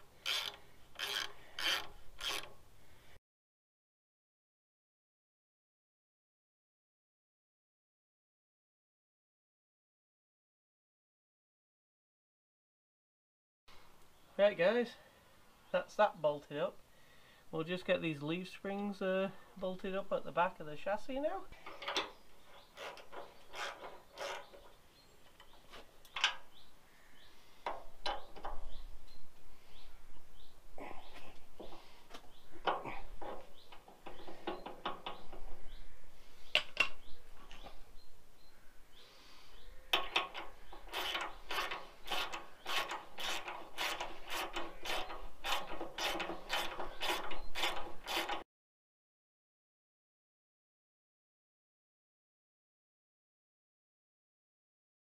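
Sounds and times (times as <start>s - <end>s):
faint bird chirps: 22.1s - 40.0s.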